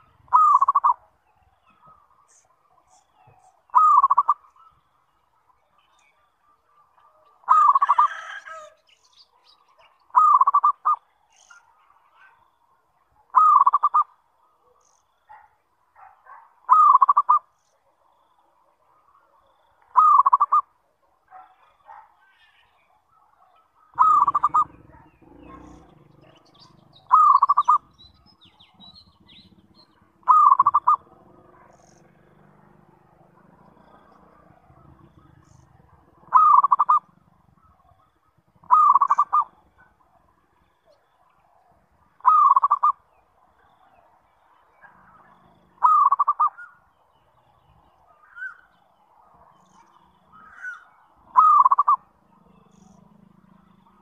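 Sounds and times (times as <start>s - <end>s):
dove cooing: 0.0s - 1.0s, 3.2s - 4.4s, 7.4s - 8.8s, 10.1s - 11.0s, 13.3s - 14.1s, 16.3s - 17.5s, 19.9s - 20.7s, 23.9s - 32.2s, 32.9s - 40.2s, 42.2s - 43.0s, 45.2s - 46.8s, 50.3s - 54.0s.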